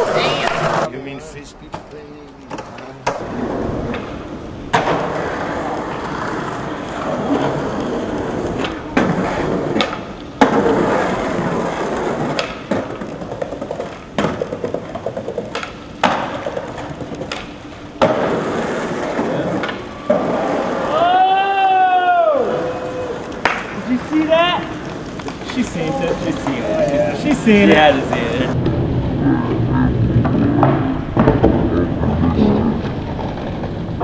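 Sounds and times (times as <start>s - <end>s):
skateboard wheels rolling on pavement: 0.0s - 34.0s
skateboard clacking on landings: 1.7s - 20.8s, 23.1s - 28.6s.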